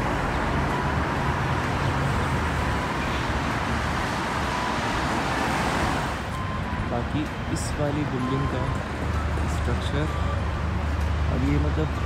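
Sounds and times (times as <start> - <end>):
city road traffic: 0.0 - 12.0.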